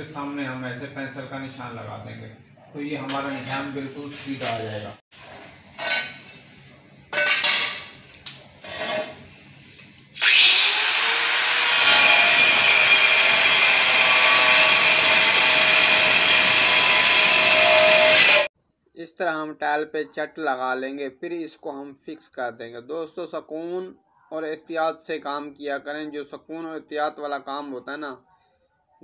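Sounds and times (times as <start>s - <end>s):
angle grinder cutting tile: 8.6s - 9.2s, 10.1s - 18.5s.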